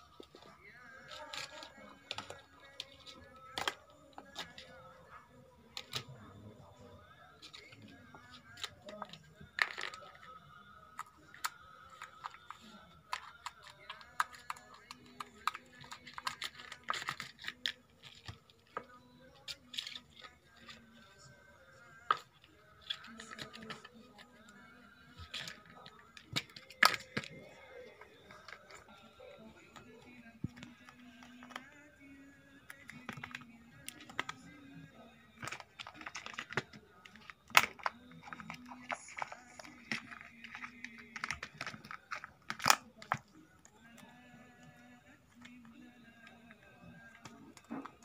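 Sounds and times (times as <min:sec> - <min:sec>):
faint background voices: 0:00.0 - 0:48.0.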